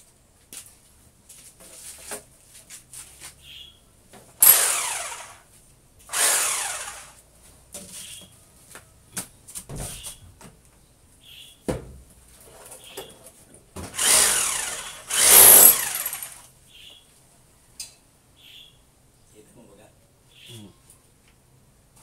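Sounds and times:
electric power drill whine: 0:04.4 - 0:05.5, 0:06.1 - 0:07.2, 0:13.9 - 0:16.5.

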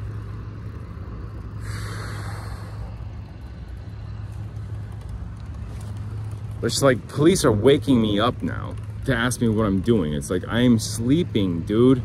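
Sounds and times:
vehicle engine running: 0:00.0 - 0:12.0
hiss of air: 0:01.6 - 0:03.2.

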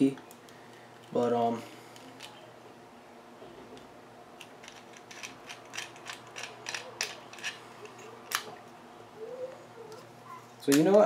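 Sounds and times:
plastic parts clicking: 0:04.4 - 0:08.5.

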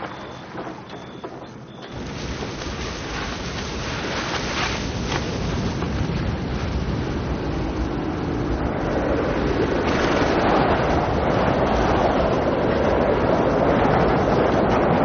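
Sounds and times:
strong wind blowing: 0:01.8 - 0:15.0.

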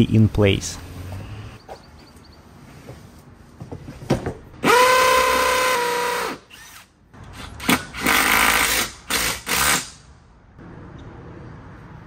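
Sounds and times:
cordless drill whining: 0:04.6 - 0:06.9.

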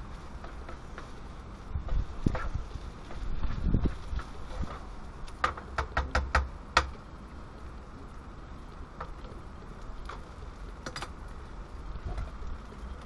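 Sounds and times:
low hiss: 0:00.0 - 0:13.0.

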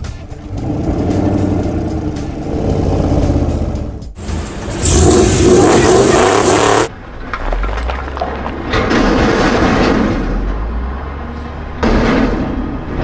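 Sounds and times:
loud engine noise: 0:00.2 - 0:07.0
low rumbling effect: 0:00.3 - 0:11.0
sudden loud hit: 0:04.2 - 0:06.9.

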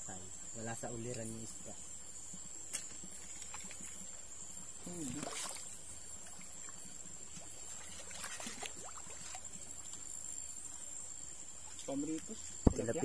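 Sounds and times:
river water trickling over rocks: 0:02.6 - 0:13.0
small water splashes: 0:02.7 - 0:10.6.

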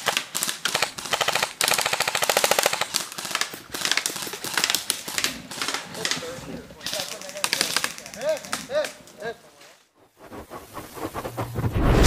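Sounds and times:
airsoft guns firing bursts: 0:00.0 - 0:06.2, 0:06.9 - 0:08.8.

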